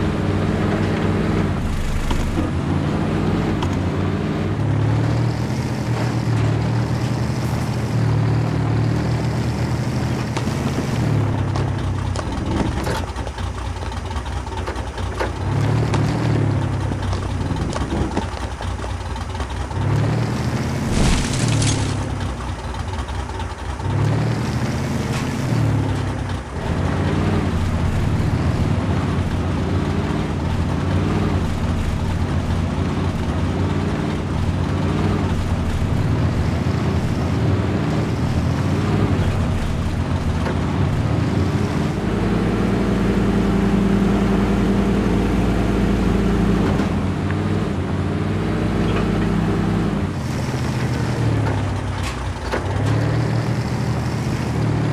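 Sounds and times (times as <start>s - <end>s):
electric motor and gears whining: 0.0s - 23.1s.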